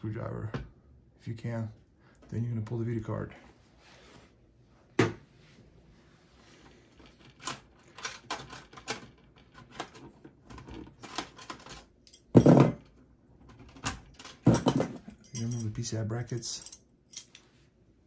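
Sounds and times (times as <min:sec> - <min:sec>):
metal slot covers clicking and rattling: 0:07.0 - 0:15.8.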